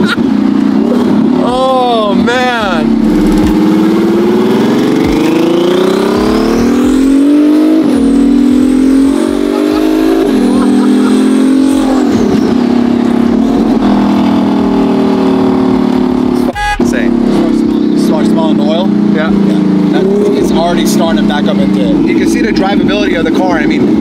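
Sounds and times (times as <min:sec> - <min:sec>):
car engine accelerating hard: 0:00.0 - 0:24.0
high turbo whistle: 0:16.5 - 0:17.1.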